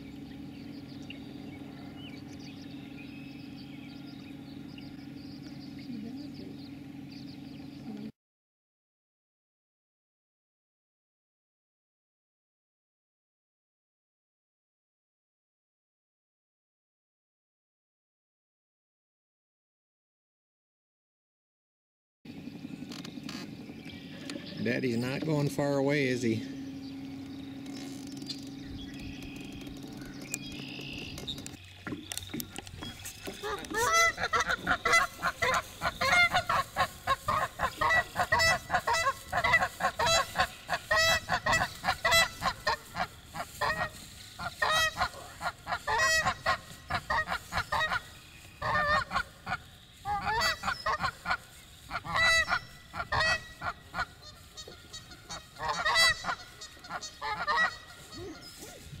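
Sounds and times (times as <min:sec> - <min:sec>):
geese honking: 0:22.8 - 0:59.0.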